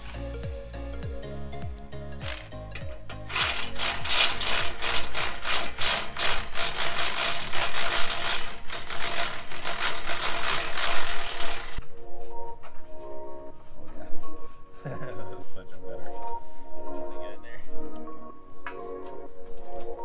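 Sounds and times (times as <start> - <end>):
tools rattling on bolts: 2.2 - 11.8.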